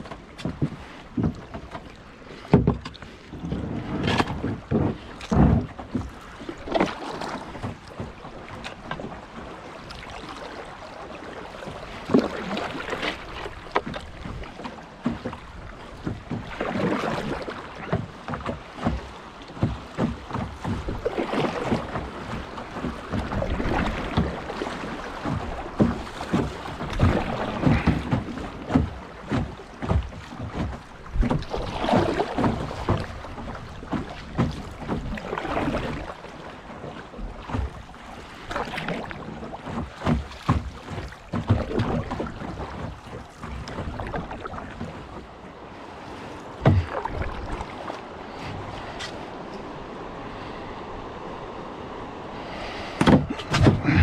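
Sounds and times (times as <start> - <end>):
paddle splashing water: 0.0 - 54.0
sharp knocks: 46.6 - 47.1, 53.0 - 54.0.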